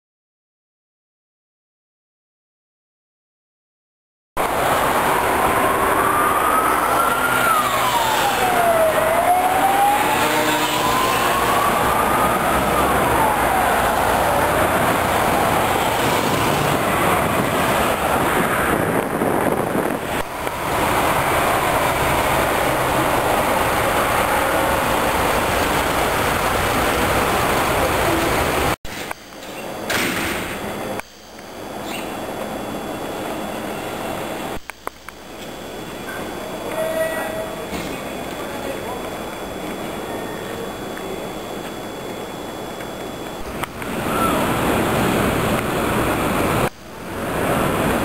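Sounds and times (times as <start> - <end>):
city traffic noise: 4.4 - 48.0
siren wailing: 4.5 - 28.7, 35.6 - 46.6.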